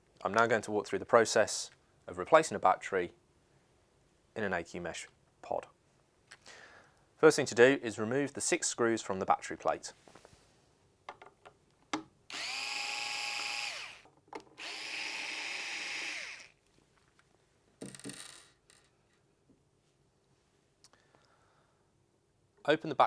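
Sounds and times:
power screwdriver whining: 12.3s - 16.6s.

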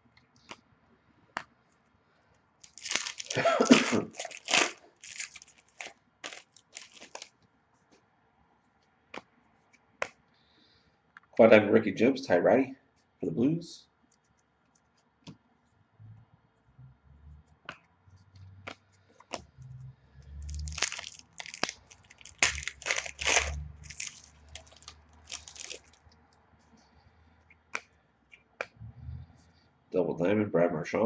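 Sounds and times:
card wrapper crinkling and tearing: 2.6s - 7.3s, 20.4s - 26.2s.

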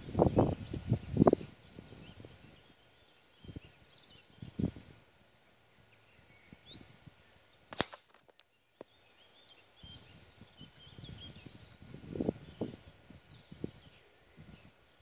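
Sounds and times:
air rifle shot crack: 7.7s - 8.2s.

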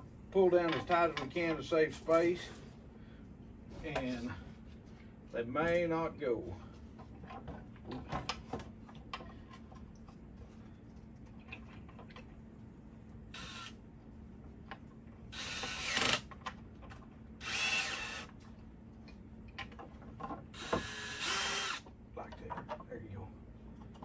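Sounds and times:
cordless drill spinning: 13.4s - 13.7s, 15.3s - 16.3s, 17.4s - 18.3s, 20.6s - 21.8s.

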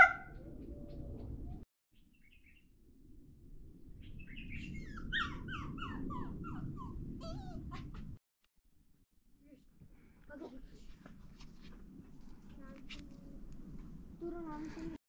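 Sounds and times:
dog whining in short yelps: 4.8s - 7.8s.

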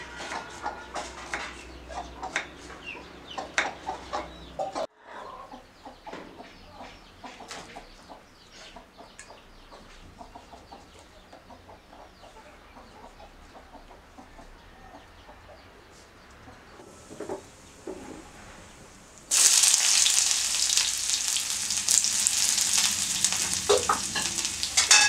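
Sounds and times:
chicken clucking: 0.1s - 18.2s, 20.2s - 25.0s.

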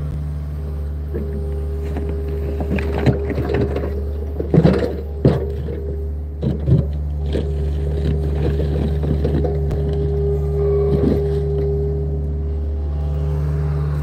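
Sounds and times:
excavator diesel engine running: 0.0s - 14.0s
clunks and knocks: 1.0s - 12.3s
bucket scraping through dirt: 1.2s - 12.2s.

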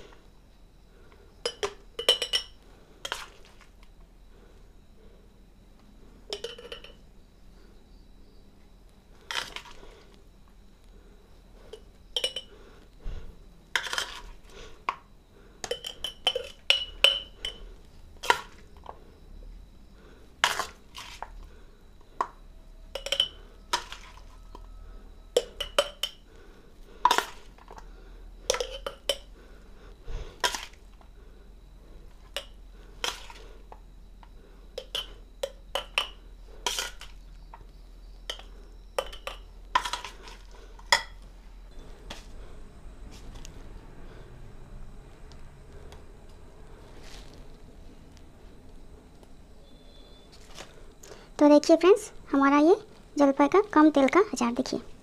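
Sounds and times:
spoon clinking on plate and jar: 1.4s - 3.2s, 6.3s - 7.0s, 11.7s - 12.5s, 15.6s - 17.6s, 22.9s - 24.2s, 25.4s - 26.2s, 28.5s - 29.3s, 34.8s - 37.1s, 38.3s - 40.2s.

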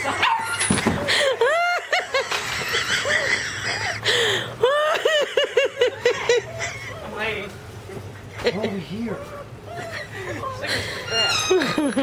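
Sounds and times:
high-pitched laughter: 0.0s - 7.2s, 9.7s - 12.0s.

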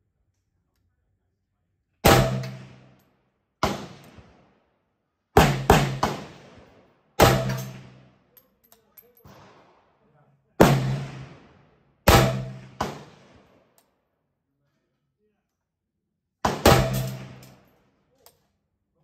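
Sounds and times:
rifle gunshots echoing: 2.0s - 3.0s, 3.6s - 4.5s, 5.4s - 8.1s, 10.6s - 13.6s, 16.4s - 17.7s.

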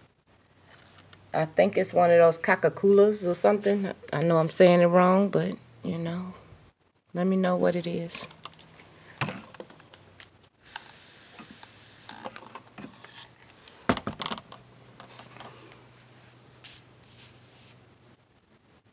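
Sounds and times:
faint steady hum: 0.0s - 18.9s
hiss: 10.6s - 12.2s, 16.6s - 17.8s.

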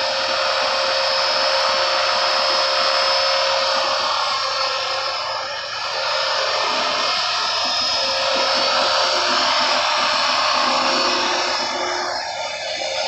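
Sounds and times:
rc helicopter motor whine: 0.0s - 13.0s
steady high tone: 3.7s - 13.0s.

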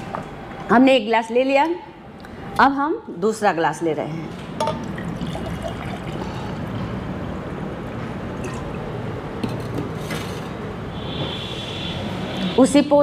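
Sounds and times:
water pouring into a glass: 4.7s - 6.8s.

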